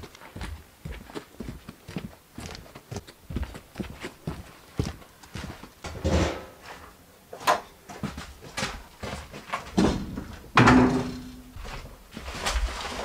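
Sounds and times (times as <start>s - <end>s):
knocks and thuds of objects moved: 9.4s - 11.4s.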